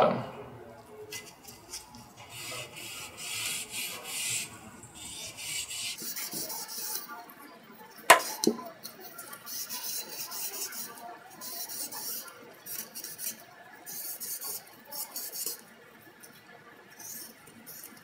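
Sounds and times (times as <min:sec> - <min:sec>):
scouring pad rasping rub: 0:01.2 - 0:07.0.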